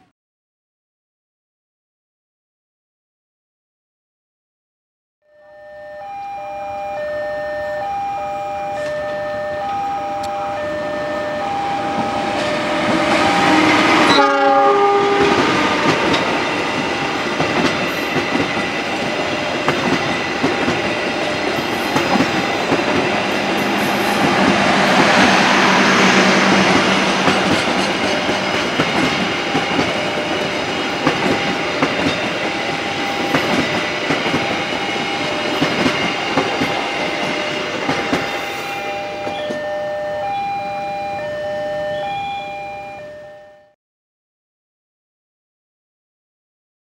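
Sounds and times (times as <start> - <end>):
beeping warning signal: 5.3 - 15.8, 27.2 - 35.9, 36.6 - 43.8
train horn: 5.3 - 17.1, 23.2 - 30.6
train wheels clickety-clack: 15.0 - 39.6.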